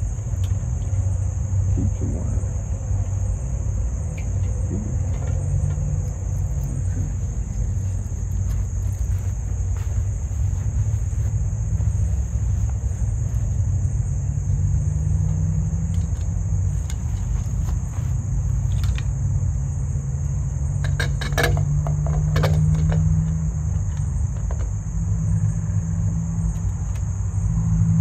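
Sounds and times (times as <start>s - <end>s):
high-pitched insect drone: 0.0s - 21.4s
low rumble: 1.5s - 14.5s.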